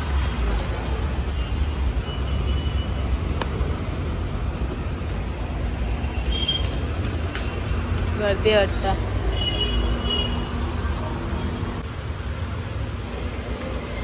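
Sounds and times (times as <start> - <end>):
low rumble of street traffic: 0.0 - 14.0.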